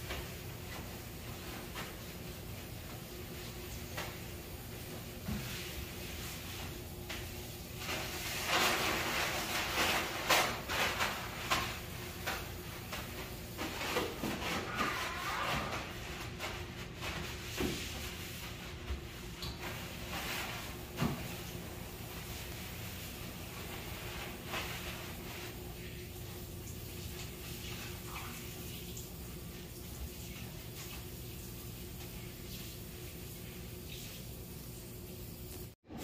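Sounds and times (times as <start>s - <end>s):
paper towel wiping: 0.0s - 34.8s.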